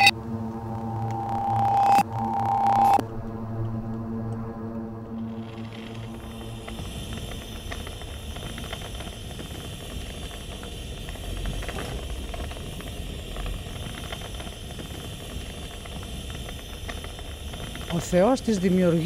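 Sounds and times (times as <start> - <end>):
gas torch hissing and rumbling: 0.0 - 19.0
faint ticks: 5.0 - 19.0.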